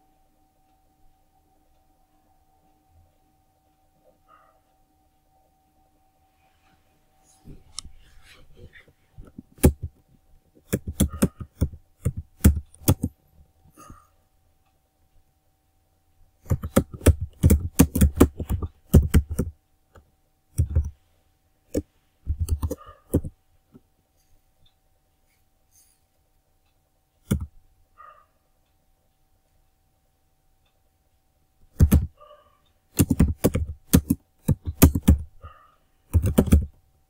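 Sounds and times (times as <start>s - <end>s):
keyboard typing: 9.2s - 13.2s, 16.4s - 21.0s, 21.7s - 23.4s, 27.2s - 27.5s, 31.6s - 32.2s, 32.9s - 36.8s.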